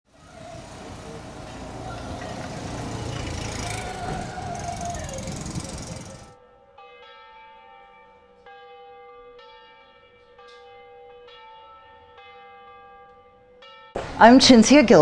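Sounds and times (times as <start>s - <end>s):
car traffic rushing: 0.1s - 6.4s
church bell ringing: 0.1s - 14.4s.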